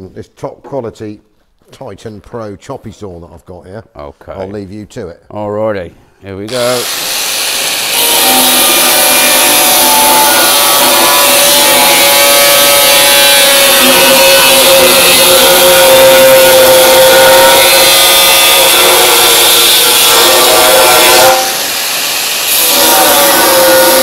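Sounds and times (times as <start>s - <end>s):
angle grinder cutting steel: 6.5s - 24.0s.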